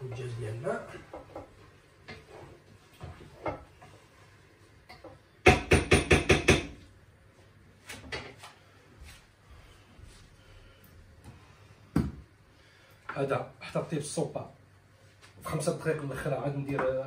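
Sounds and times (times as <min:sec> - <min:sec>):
cookware knocking and clattering: 0:04.9 - 0:06.8.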